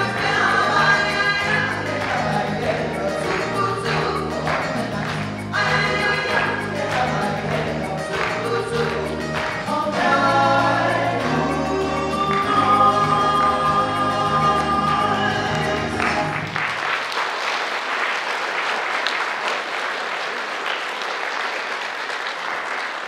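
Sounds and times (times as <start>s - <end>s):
women's vocal trio singing: 0.0s - 16.6s
audience applause: 0.0s - 23.0s.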